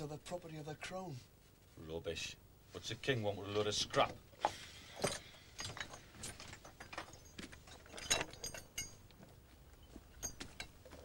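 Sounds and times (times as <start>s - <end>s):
objects clinking and knocking: 4.9s - 11.0s.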